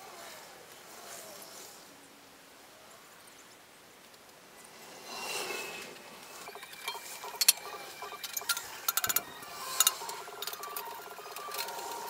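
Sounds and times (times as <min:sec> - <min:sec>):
hand ratchet clicking: 0:06.0 - 0:12.0
metal tools clinking: 0:06.0 - 0:12.0.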